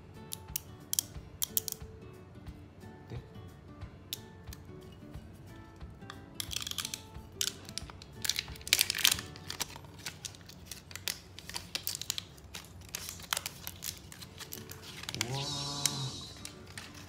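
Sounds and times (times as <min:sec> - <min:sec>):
soft background music: 0:00.0 - 0:17.0
plastic wrap tearing and crinkling: 0:06.4 - 0:17.0.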